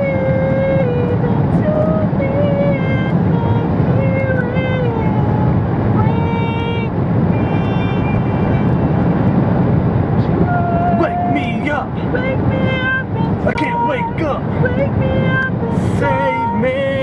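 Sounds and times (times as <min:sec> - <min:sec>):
car rumble inside cabin: 0:00.0 - 0:17.0
voices singing long notes: 0:10.4 - 0:17.0.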